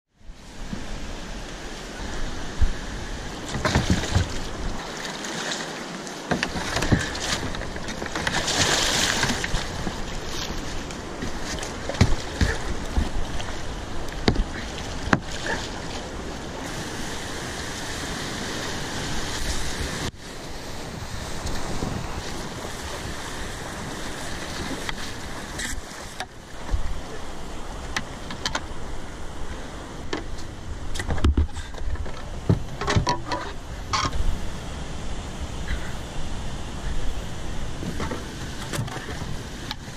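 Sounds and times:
whitewater rapids roaring: 0.4 - 30.9.

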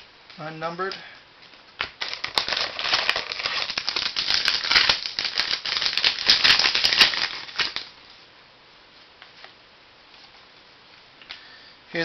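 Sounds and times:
cards crackling and rustling: 1.8 - 8.0.

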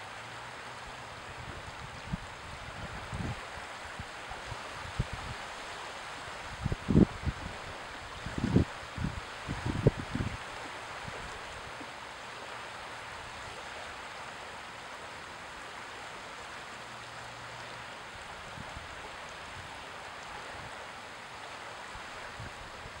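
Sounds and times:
small waves lapping: 7.2 - 23.0.

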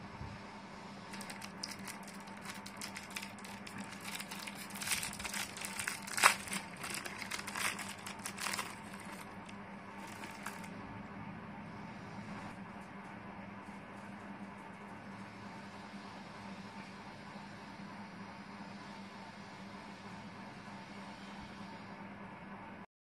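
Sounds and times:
plastic packet crinkling: 1.1 - 10.7.

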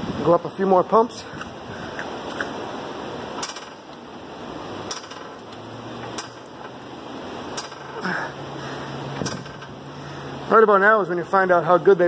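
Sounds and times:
floor jack clicking: 3.4 - 3.8, 7.6 - 8.1.

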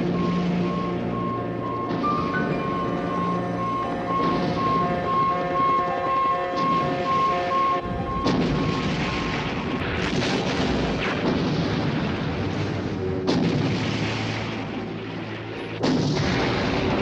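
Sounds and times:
booming destruction effects: 0.0 - 5.9, 6.5 - 17.0
loud hits: 6.5 - 15.1.

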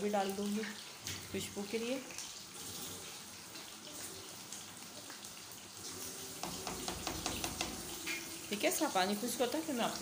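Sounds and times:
rice boiling in pan: 0.0 - 10.0.

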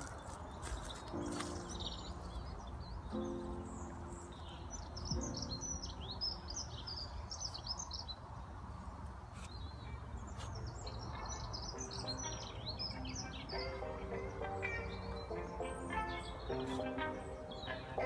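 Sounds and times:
songbird twittering: 0.0 - 8.2.

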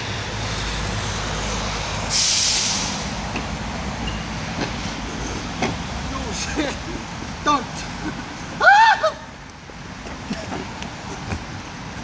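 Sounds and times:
low traffic rumble: 0.0 - 12.0
loud short hiss: 2.1 - 3.1.

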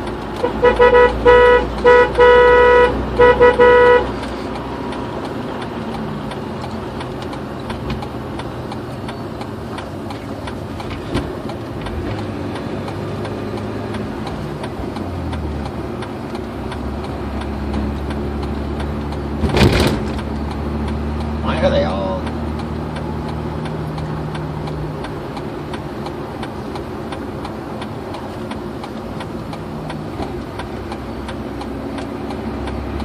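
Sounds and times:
road and engine noise in car: 0.0 - 33.0
loud thump: 19.4 - 20.2.

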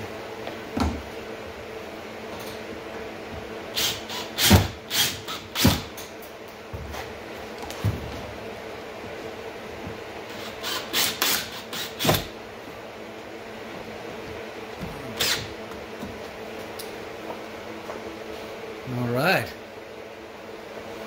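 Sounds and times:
cordless drill driving screws: 15.2 - 15.5.

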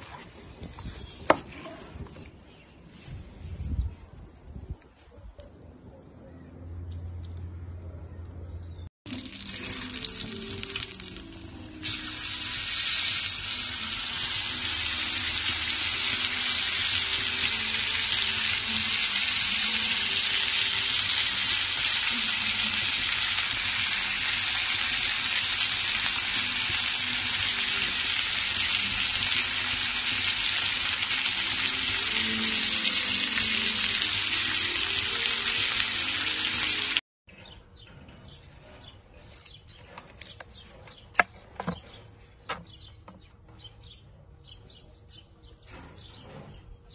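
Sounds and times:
beef sizzling on salt block: 9.1 - 37.0.

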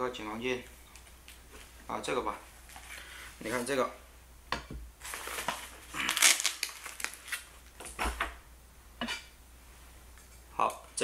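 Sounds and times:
crinkling and rustling: 5.0 - 8.1.

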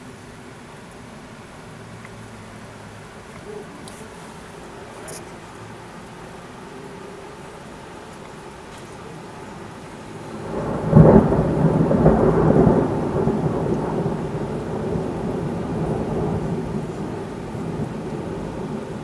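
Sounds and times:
thunder clap and rumble: 10.3 - 19.0.

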